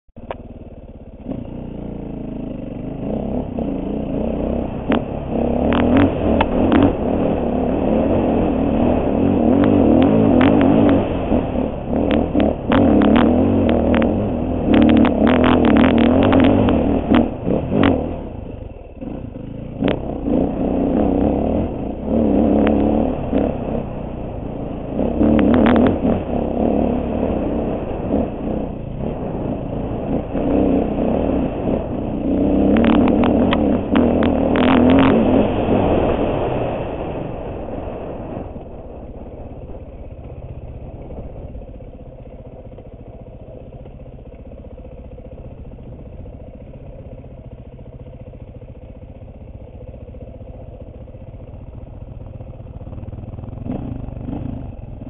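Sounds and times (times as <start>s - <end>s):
dirt bike engine revving: 1.1s - 38.4s, 52.6s - 55.0s.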